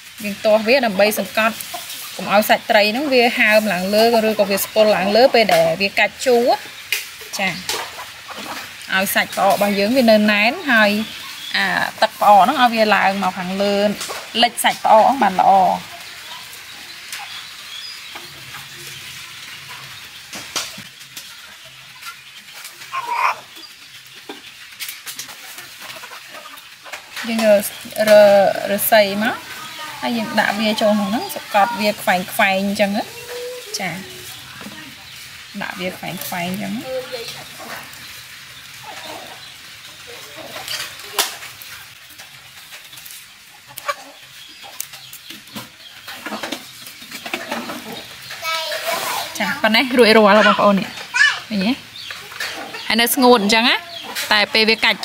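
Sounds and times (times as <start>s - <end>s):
scraping and rustling: 40.0s - 51.3s.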